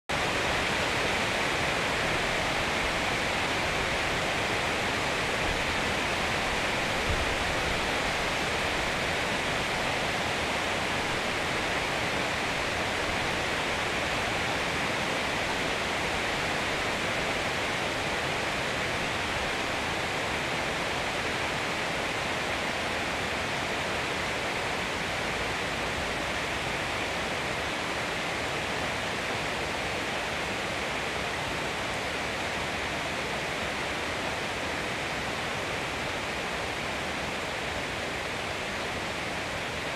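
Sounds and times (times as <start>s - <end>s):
heavy rain through forest canopy: 0.1s - 39.9s.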